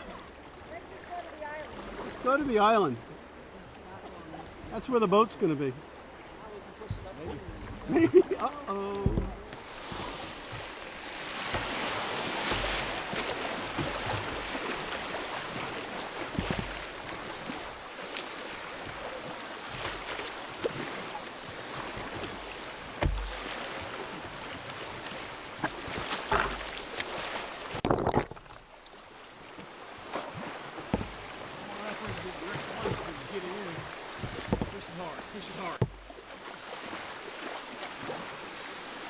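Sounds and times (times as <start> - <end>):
low thumps: 9.0 - 10.8, 30.9 - 31.3, 34.1 - 34.9, 35.6 - 36.2
loud water splash: 9.2 - 28.8.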